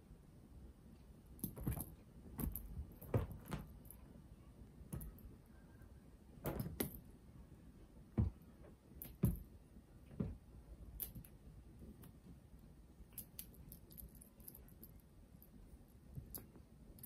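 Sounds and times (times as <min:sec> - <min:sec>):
cat thumping and scuffling on sofa: 0:01.4 - 0:03.9, 0:06.4 - 0:07.0, 0:08.1 - 0:10.6.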